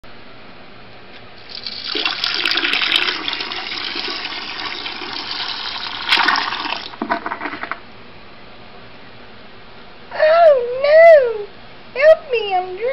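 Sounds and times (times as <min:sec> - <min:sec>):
toilet flushing: 0:01.4 - 0:07.8
water gurgling as bowl drains: 0:01.5 - 0:07.8.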